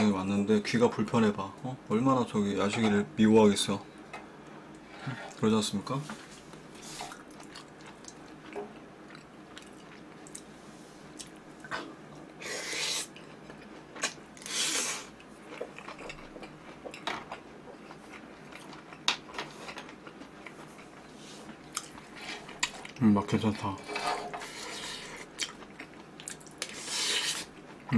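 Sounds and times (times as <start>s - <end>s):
chewing with small clicks: 7.1s - 10.5s, 11.2s - 11.8s, 15.2s - 23.0s, 25.1s - 26.8s
person slurping noodles: 12.4s - 13.1s, 14.4s - 15.1s, 26.7s - 27.5s.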